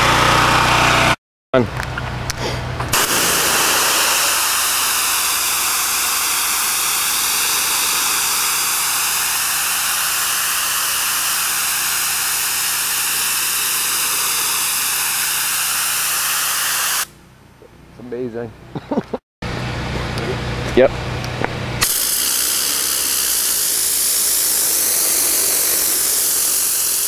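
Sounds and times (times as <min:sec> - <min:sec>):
pressure washer spraying concrete: 0:02.9 - 0:17.1, 0:21.8 - 0:27.0.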